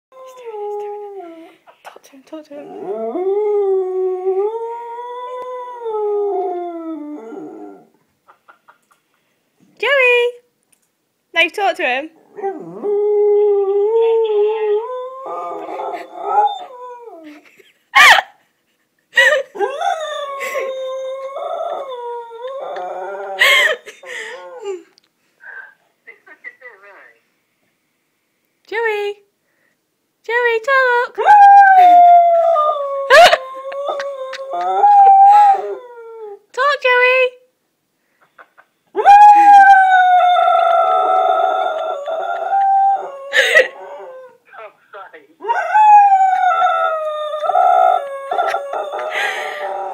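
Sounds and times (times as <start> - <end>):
dog howling: 39.0 - 44.4, 45.4 - 49.9.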